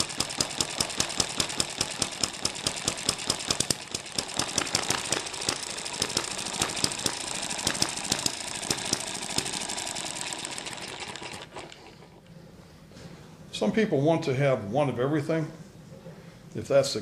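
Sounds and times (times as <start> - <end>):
hit-and-miss engine running: 0.0 - 12.3.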